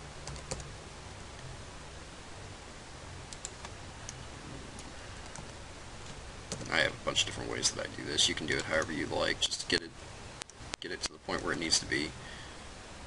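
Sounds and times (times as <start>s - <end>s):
low hum: 0.0s - 13.0s
microphone hiss: 0.0s - 13.0s
computer keyboard clicks: 0.2s - 0.7s.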